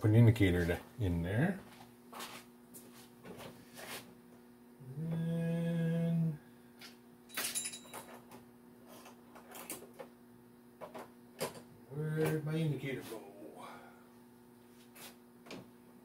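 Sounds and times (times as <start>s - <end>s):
steady low hum: 0.0s - 16.0s
tools clicking and clattering: 7.3s - 8.4s.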